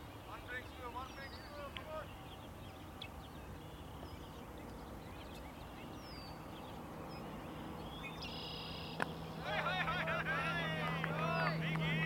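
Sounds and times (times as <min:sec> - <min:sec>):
small birds chirping: 0:00.0 - 0:09.5
low outdoor background rumble: 0:00.0 - 0:12.0.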